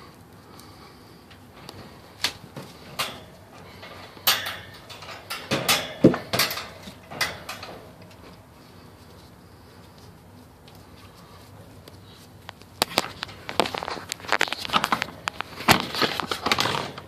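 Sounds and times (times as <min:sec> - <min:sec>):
wire dog crate rattling: 0:02.6 - 0:08.0.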